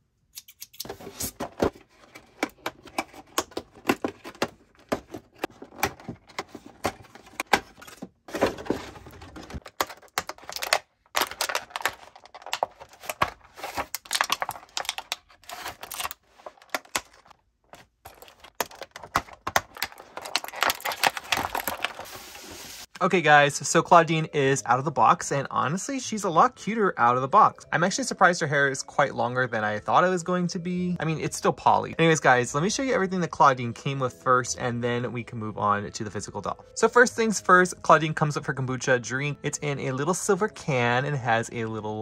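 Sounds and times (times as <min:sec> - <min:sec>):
plastic crinkling: 0:01.9 - 0:22.9.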